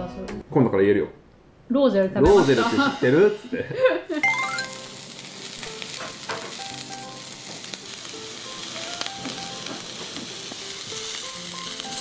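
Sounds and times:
beef sizzling on hot stone: 0:04.1 - 0:12.0.

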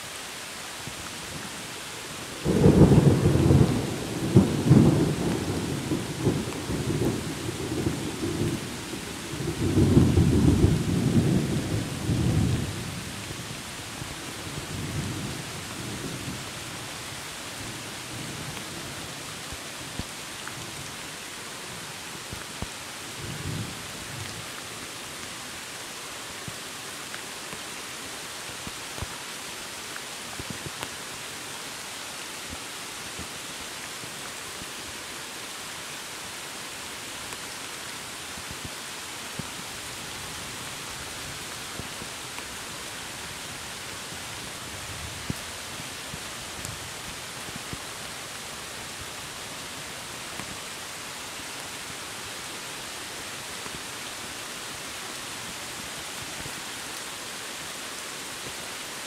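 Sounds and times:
steady rain falling: 0:00.0 - 0:59.0
thunder rumbling: 0:02.4 - 0:08.6.

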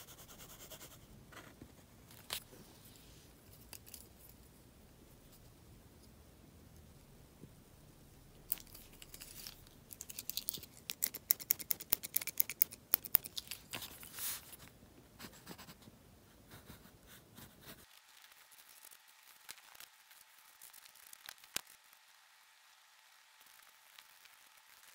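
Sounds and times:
mechanical pencil clicks and scratches: 0:09.9 - 0:13.6.

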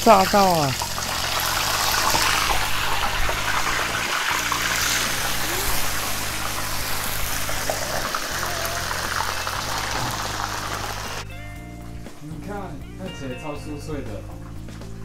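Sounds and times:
chicken deep-frying in hot oil: 0:00.0 - 0:11.3.

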